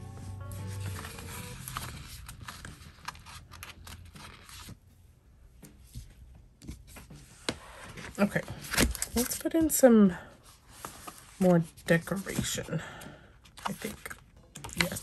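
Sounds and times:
background music: 0:00.0 - 0:02.4
paper rustling: 0:00.5 - 0:04.8.

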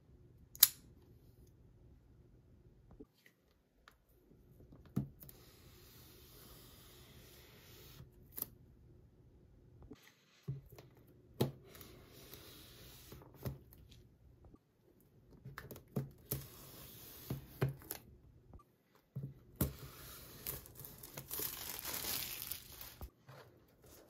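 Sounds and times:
plastic film crinkling: 0:20.5 - 0:23.1
plastic wrap being slit and torn: 0:20.6 - 0:23.1.

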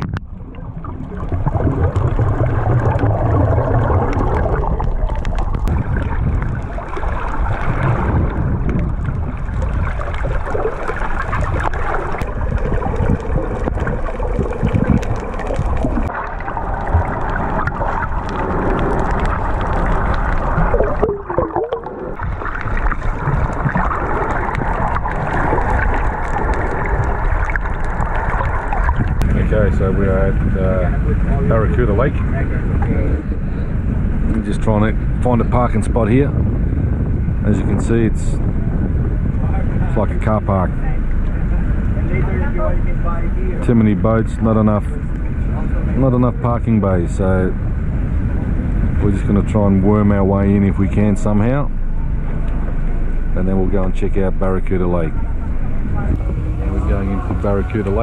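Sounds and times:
gurgling bubbles: 0:00.0 - 0:33.3
muffled underwater water noise: 0:00.0 - 0:58.0.

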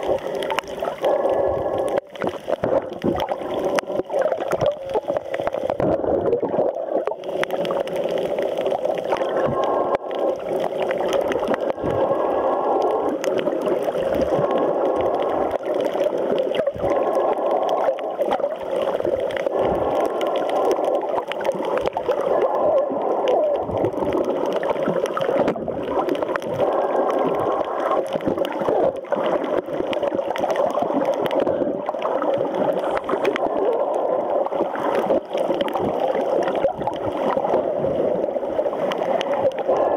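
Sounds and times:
muffled underwater noise: 0:00.0 - 0:39.9
faint clicks: 0:12.6 - 0:37.6.

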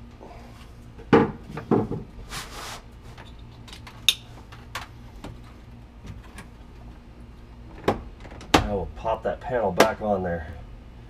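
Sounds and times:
scraping rustle: 0:02.2 - 0:03.4.

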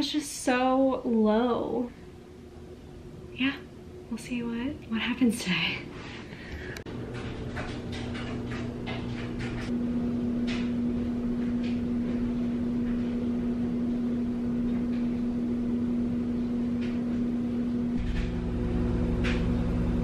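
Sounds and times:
kitchen appliance humming: 0:06.0 - 0:20.0.

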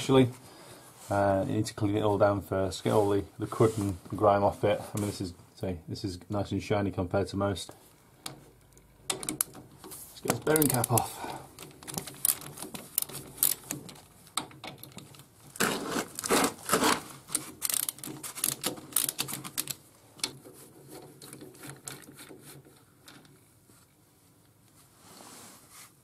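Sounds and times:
ratchet wrench clicking: 0:12.2 - 0:13.8, 0:17.6 - 0:19.7.

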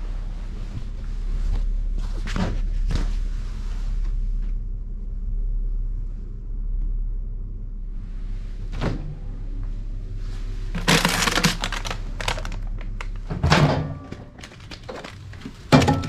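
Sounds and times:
low steady hum: 0:00.0 - 0:16.0
clattering rustle: 0:10.2 - 0:16.0
handling clicks and rustling: 0:10.6 - 0:16.0.

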